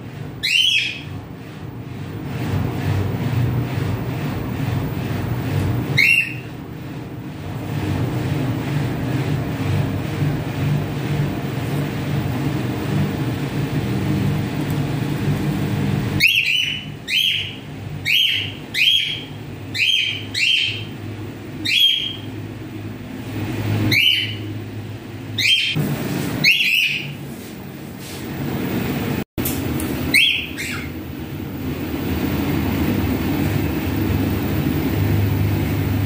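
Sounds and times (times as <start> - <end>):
steady low hum: 0.0 - 36.0
cockatiel chirping: 0.4 - 1.1, 6.0 - 6.4, 16.2 - 20.9, 21.6 - 22.3, 23.9 - 24.4, 25.4 - 25.8, 26.4 - 27.2, 30.1 - 31.0.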